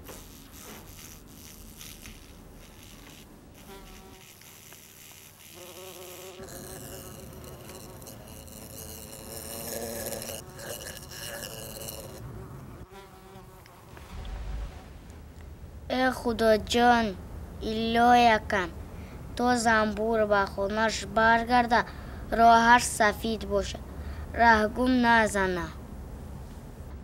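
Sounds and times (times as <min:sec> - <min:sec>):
bee buzzing: 0:00.0 - 0:14.2.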